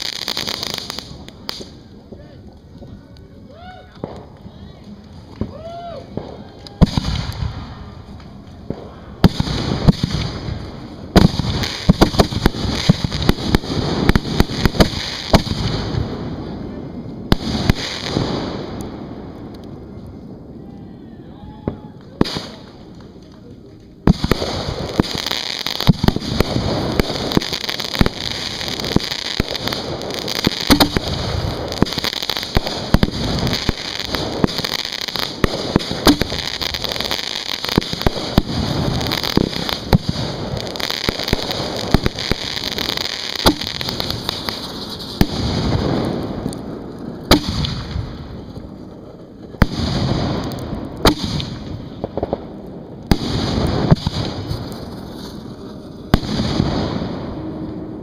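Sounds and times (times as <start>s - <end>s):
firework bangs and crackle: 0.0s - 58.0s
firework shells launching: 24.0s - 48.5s, 49.6s - 52.5s.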